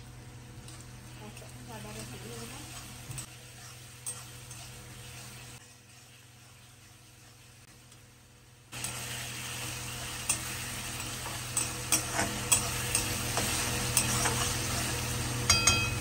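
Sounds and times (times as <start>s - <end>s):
onions sizzling in hot oil: 0.0s - 16.0s
metal spatula scraping pan: 1.8s - 7.5s, 10.0s - 14.8s.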